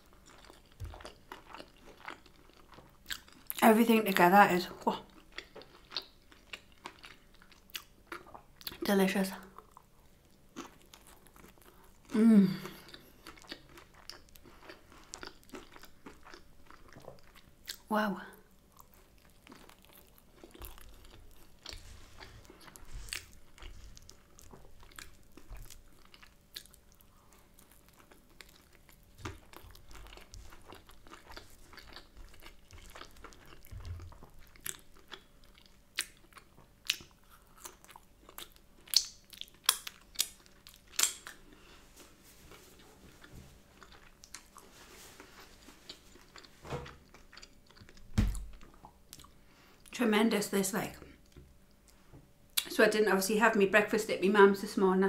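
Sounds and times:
chewing with wet mouth clicks: 0.1 - 3.6, 5.1 - 8.8, 12.8 - 17.9, 22.5 - 41.5, 45.9 - 49.4.

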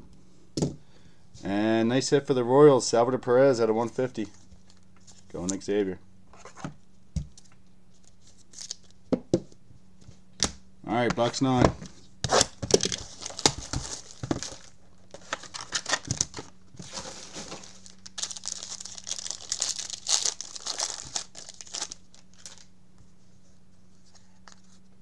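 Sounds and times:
faint steady hum: 0.0 - 25.0
plastic wrapping crinkling and tearing: 8.0 - 9.0, 12.3 - 22.7.

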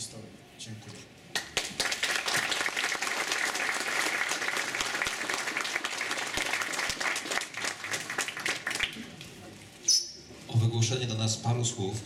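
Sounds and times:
audience applauding: 1.4 - 9.2.

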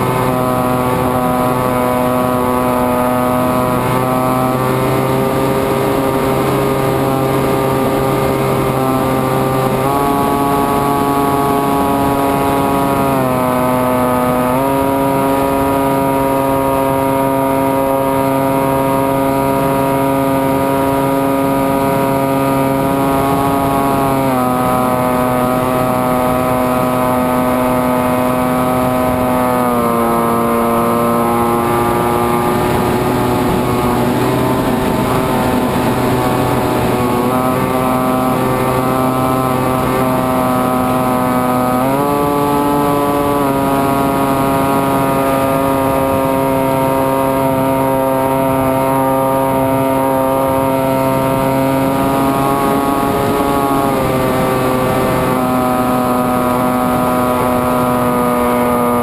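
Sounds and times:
electric motor and propeller whine: 0.0 - 59.0.

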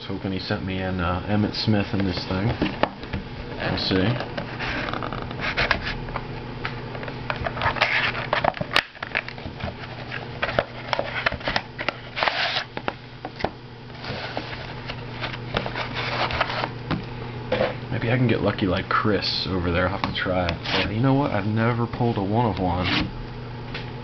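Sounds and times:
cardboard handling: 1.9 - 6.3, 6.9 - 17.0.

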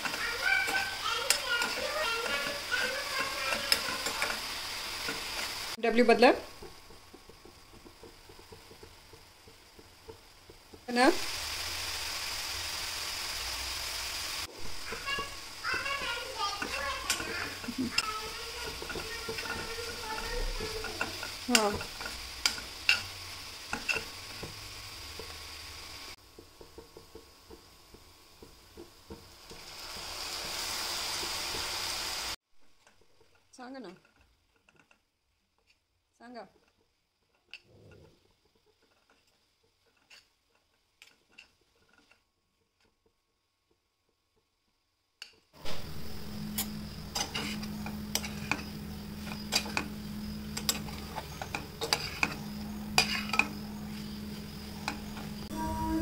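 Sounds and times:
spatula stirring in a pan: 0.0 - 44.5, 45.2 - 55.6
hissing sizzle: 0.0 - 56.0
steady low hum: 45.6 - 56.0.

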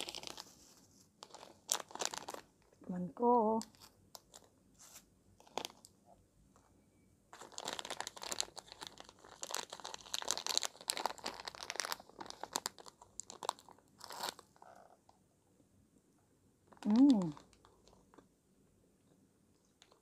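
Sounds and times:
candy wrapper crinkling: 0.0 - 0.5, 1.2 - 2.8, 3.6 - 4.5, 5.4 - 5.9, 7.3 - 14.8, 16.7 - 18.3, 19.7 - 20.0.

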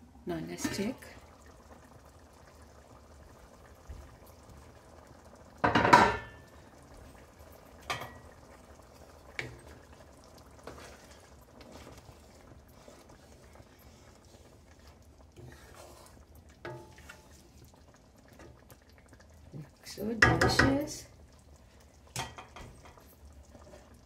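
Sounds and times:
kitchenware clattering: 5.6 - 6.4, 22.2 - 23.0
spatula stirring in a pan: 5.6 - 24.0
spatula knocking against pan: 20.2 - 20.8.

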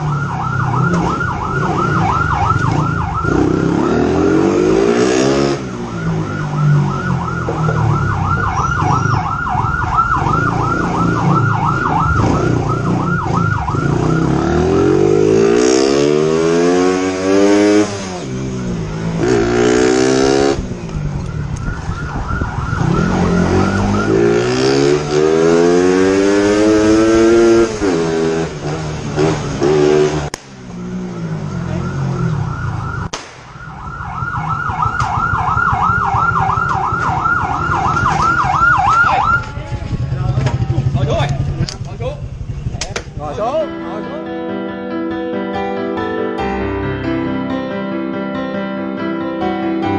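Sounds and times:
police siren: 0.0 - 18.3, 19.2 - 28.0, 30.6 - 39.7.

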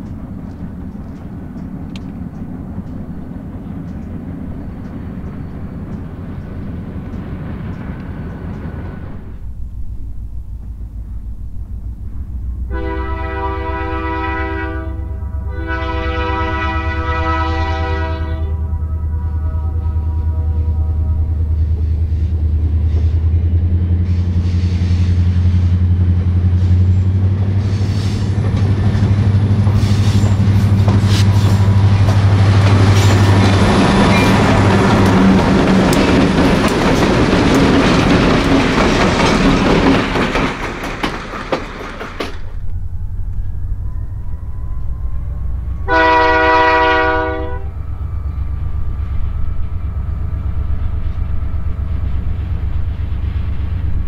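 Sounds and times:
train wheels clattering on rails: 0.0 - 9.4, 21.2 - 43.5
diesel locomotive engine drone: 0.0 - 54.0
distant locomotive engine rumble: 0.0 - 54.0
distant locomotive horn blast: 12.1 - 36.0, 42.7 - 51.8.

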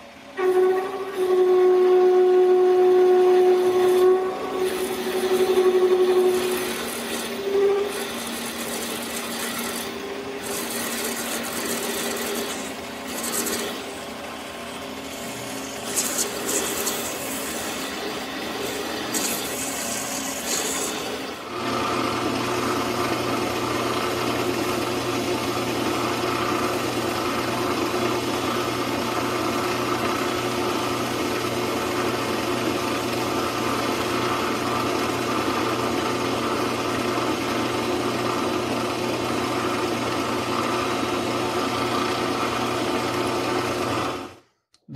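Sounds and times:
low hum and whine: 0.0 - 8.8
lathe motor running: 0.0 - 44.4
lathe tool scraping chips: 0.4 - 31.8.

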